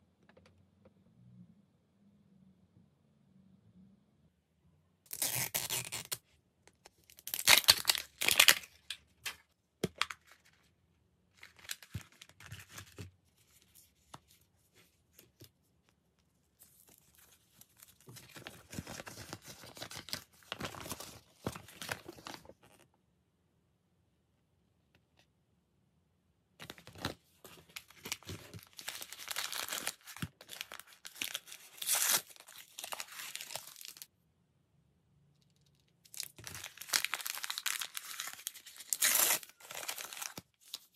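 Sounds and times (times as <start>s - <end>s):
wrapper tearing: 5.1s - 6.2s, 7.1s - 9.4s, 27.9s - 34.0s, 36.1s - 40.9s.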